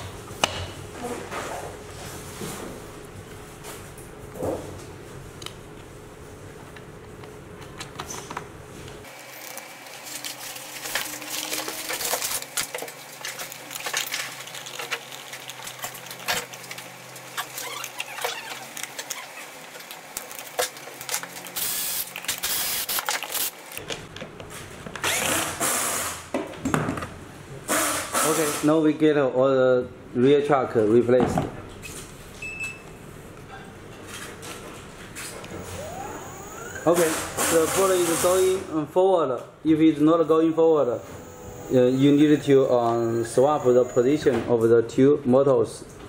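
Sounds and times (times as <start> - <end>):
cordless drill-driver running: 21.6 - 23.5.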